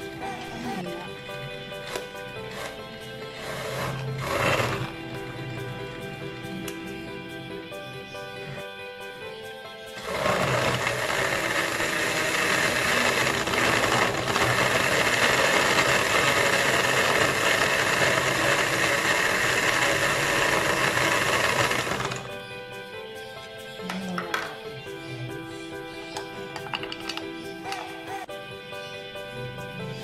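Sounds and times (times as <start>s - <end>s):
blender crushing ice: 1.8s - 5.1s, 10.0s - 22.4s.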